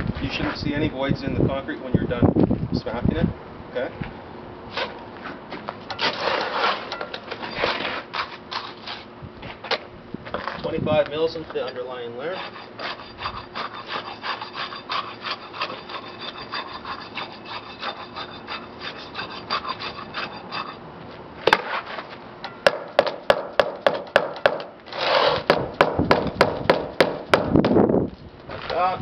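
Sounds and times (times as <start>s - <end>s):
steel rod tamping wet concrete: 5.9s - 9.1s, 11.6s - 20.8s, 21.5s - 27.5s.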